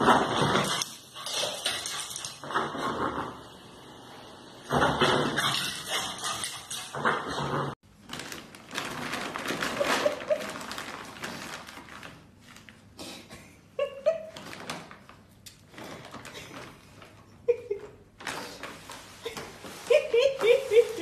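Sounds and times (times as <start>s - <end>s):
puppy high vocal sounds: 5.3s - 7.0s
plastic bag scraping on floor: 7.0s - 12.7s, 18.2s - 21.0s.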